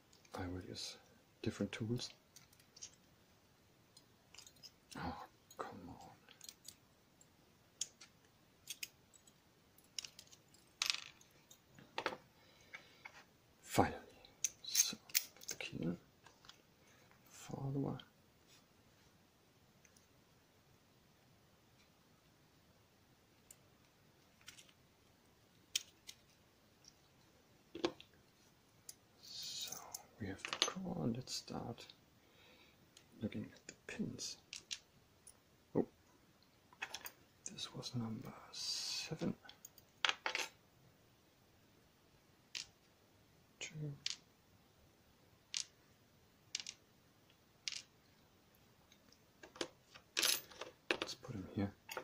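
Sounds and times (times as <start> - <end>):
small metallic clicks and scrapes: 2.3 - 3.1, 3.9 - 5.6, 7.8 - 12.1, 24.3 - 24.8, 46.6 - 46.8.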